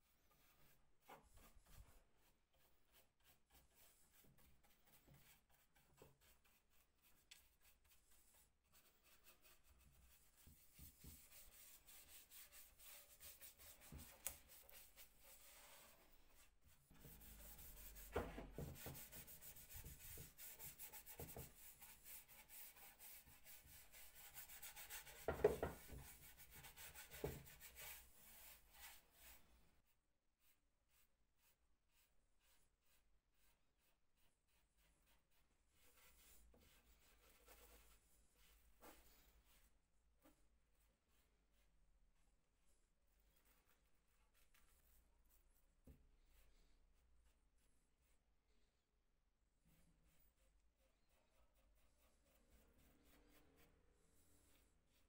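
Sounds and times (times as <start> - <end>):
hand rubbing on wood: 2.6 - 29.5.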